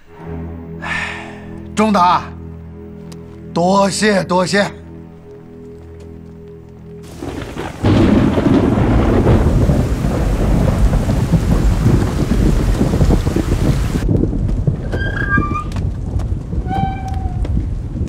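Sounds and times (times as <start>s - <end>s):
heavy rain pouring: 7.0s - 18.0s
thunder rumbling: 7.1s - 18.0s.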